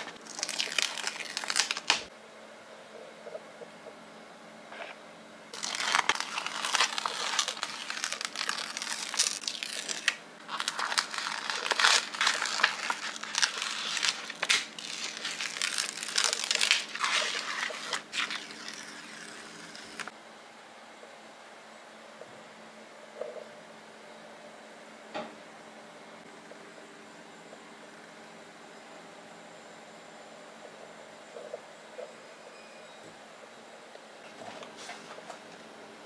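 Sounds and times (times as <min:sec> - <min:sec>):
paper sticker sheet crinkling: 0:00.0 - 0:02.1, 0:05.6 - 0:20.1
stickers peeling off: 0:00.0 - 0:02.1, 0:05.6 - 0:20.1.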